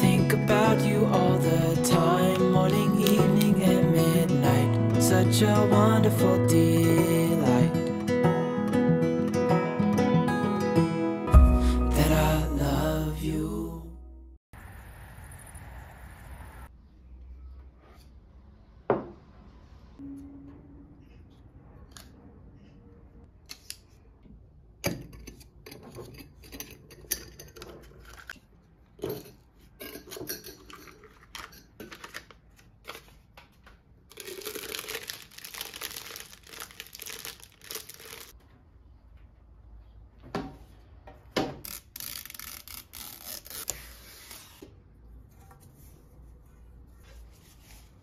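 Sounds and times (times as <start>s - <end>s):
packaging crinkling and tearing: 30.9s - 33.3s, 34.1s - 38.4s, 41.6s - 44.6s.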